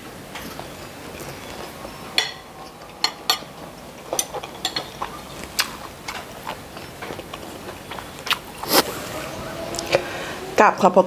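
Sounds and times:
cutlery clinking on plate: 2.2 - 5.1.

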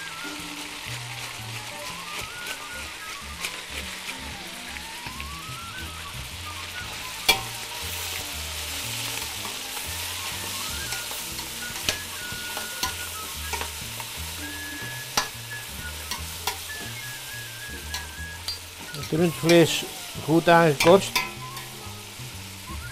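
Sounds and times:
beef sizzling in a pot: 0.0 - 22.9
sharp knocks against a pot: 20.8 - 21.7.

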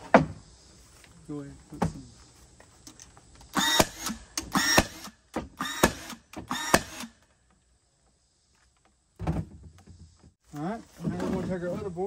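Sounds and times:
nailer motor whir and snap: 3.5 - 7.2.

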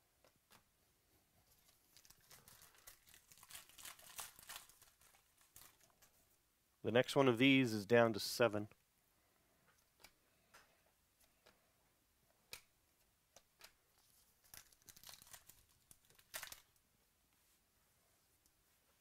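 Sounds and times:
foil wrapper crinkling and tearing: 1.6 - 5.9, 14.4 - 16.8.

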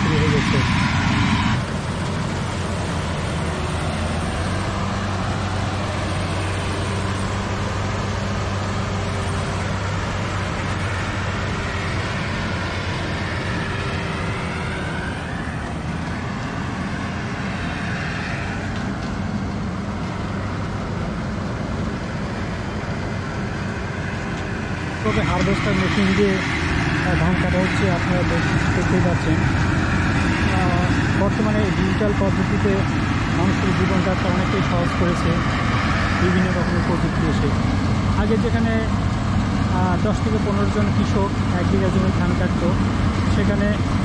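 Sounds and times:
combine harvester running: 0.0 - 44.0.

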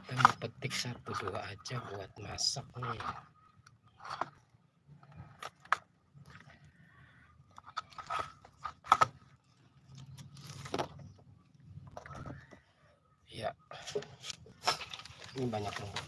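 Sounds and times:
stalks crunching and snapping: 4.0 - 6.7, 7.5 - 11.1, 14.1 - 16.0.

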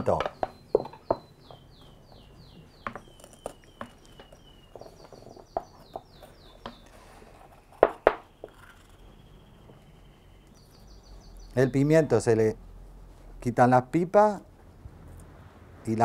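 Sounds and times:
songbird singing: 0.0 - 12.6.

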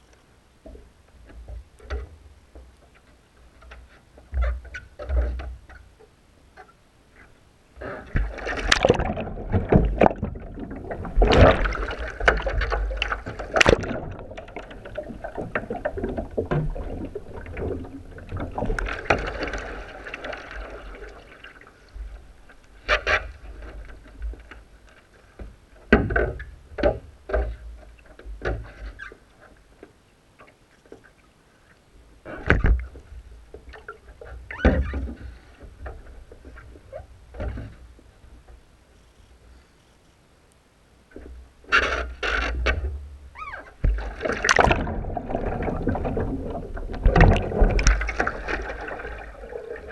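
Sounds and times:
water splashing around a kayak: 0.0 - 38.9, 40.8 - 49.9
paddle splashes: 7.8 - 24.7, 41.1 - 49.9.

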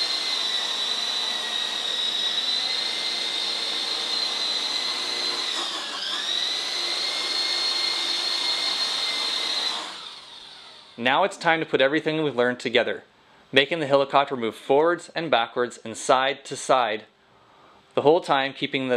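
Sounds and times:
toy helicopter motors whining: 0.0 - 11.0.

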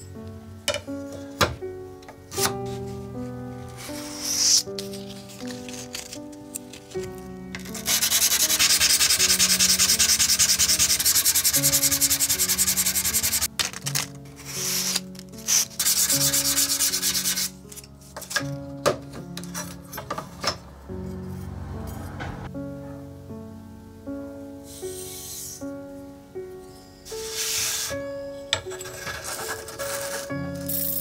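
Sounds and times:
sandpaper rubbing on steel blade: 3.9 - 6.1, 7.6 - 13.5, 14.3 - 17.6, 27.1 - 28.0, 28.8 - 30.4.

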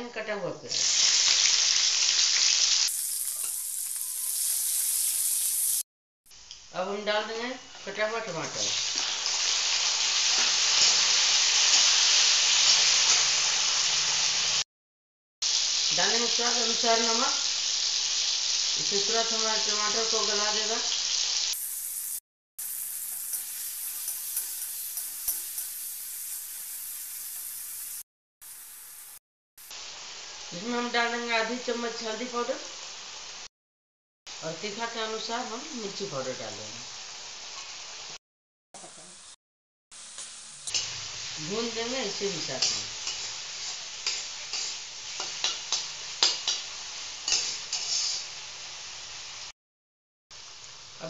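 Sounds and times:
vegetables sizzling in oil: 0.7 - 14.6, 15.4 - 33.5, 34.3 - 38.2, 38.8 - 49.5, 50.3 - 51.0
metal spatula scraping pan: 47.3 - 48.2.

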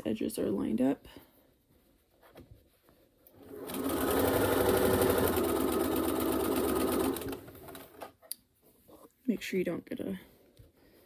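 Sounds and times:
sewing machine stitching: 3.4 - 8.2.

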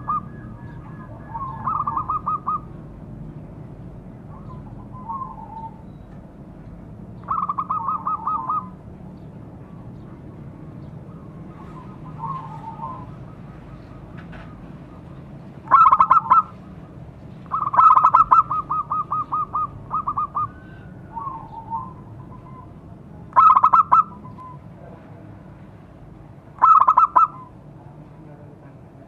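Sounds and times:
dove cooing song: 0.0 - 3.0, 4.2 - 6.1, 7.2 - 8.9, 10.6 - 24.6, 26.6 - 27.6.

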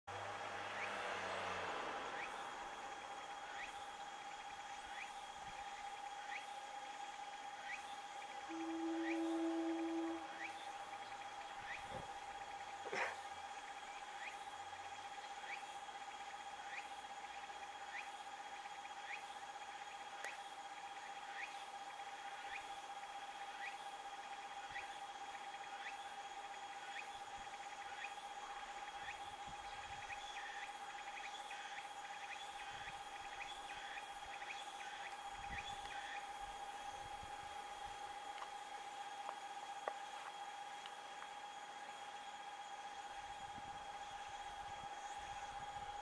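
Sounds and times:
insects chirping: 0.2 - 46.0
steady whining tone: 2.2 - 20.0.

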